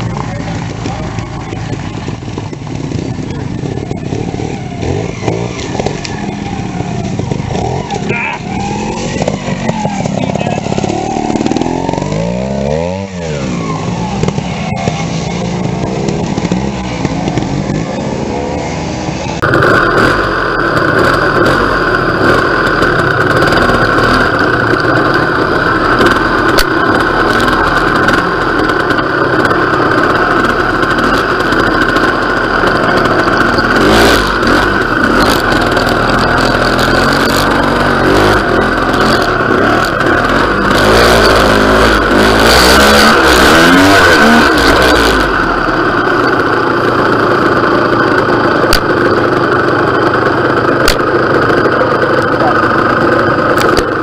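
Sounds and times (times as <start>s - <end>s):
motorcycle engine revving: 0.0s - 54.0s
sharp clicks: 50.8s - 51.1s.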